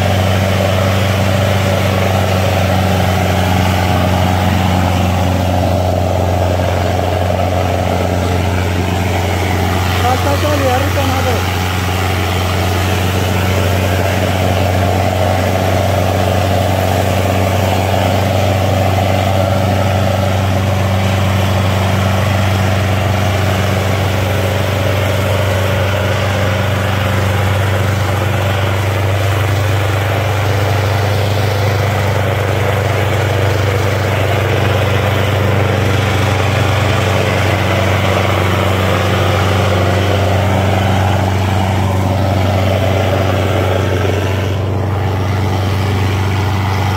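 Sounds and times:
tractor diesel engine under load: 0.0s - 46.9s.

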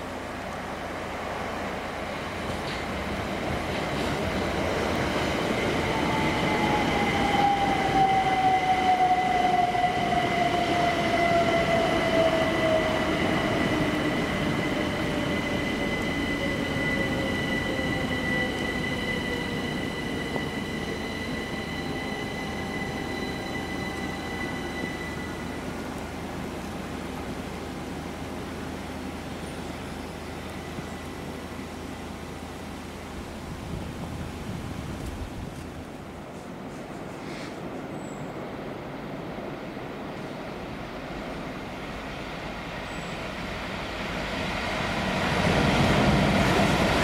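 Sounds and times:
train traction motor whine: 5.9s - 27.3s.

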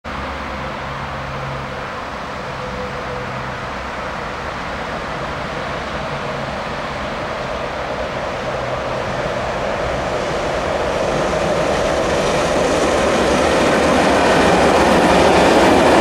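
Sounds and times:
train rumble and hiss: 0.1s - 16.0s.

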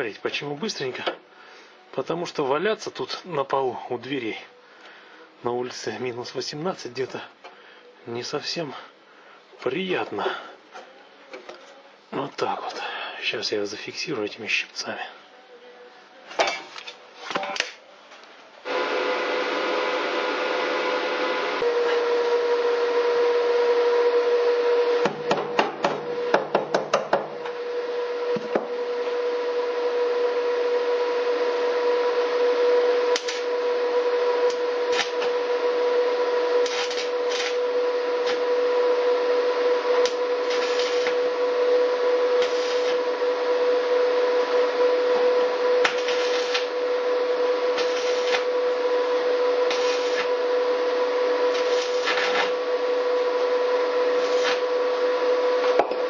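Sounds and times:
steady whine: 27.4s - 56.0s
welding arc crackling: 33.0s - 33.6s, 34.4s - 35.5s, 36.5s - 38.4s, 40.0s - 41.4s, 42.3s - 43.2s, 45.8s - 46.8s, 47.5s - 50.4s, 51.4s - 52.6s, 54.1s - 54.8s.

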